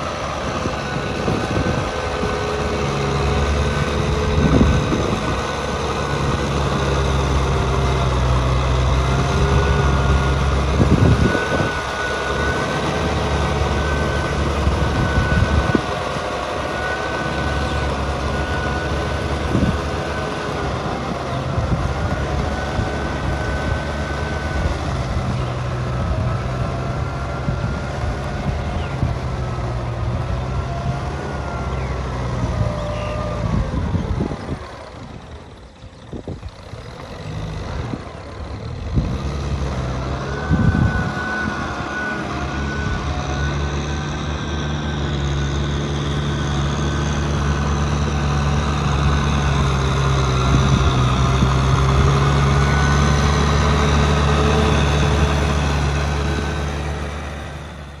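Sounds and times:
tractor diesel engine droning: 0:00.0 - 0:58.0.

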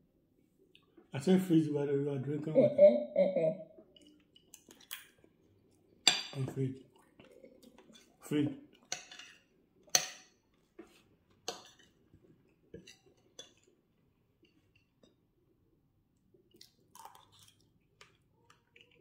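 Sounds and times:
eating and chewing: 0:03.8 - 0:06.0, 0:06.6 - 0:15.2, 0:16.2 - 0:19.0.

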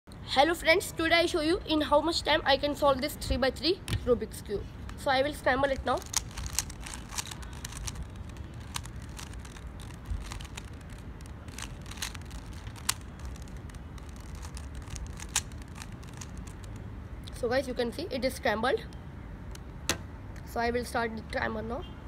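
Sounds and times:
low steady rumble: 0:02.2 - 0:17.9
puzzle cube clicking: 0:04.9 - 0:16.8.

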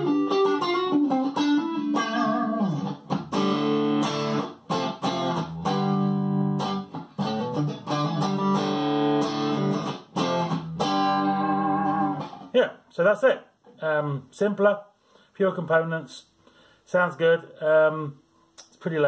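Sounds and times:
electric guitar chords and notes: 0:00.0 - 0:12.5.

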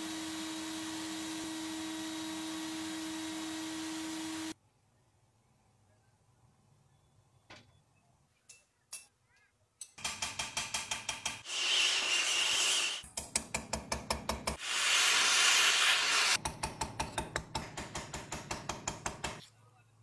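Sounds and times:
tool tapping thin sheet metal: 0:09.8 - 0:11.4, 0:16.4 - 0:19.4
gas torch flame hissing: 0:14.6 - 0:16.4.

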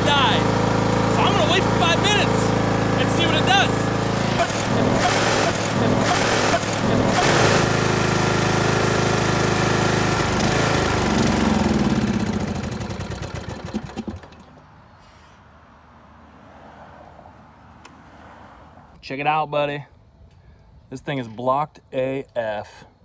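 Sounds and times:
riding mower engine sputtering: 0:00.0 - 0:14.7.

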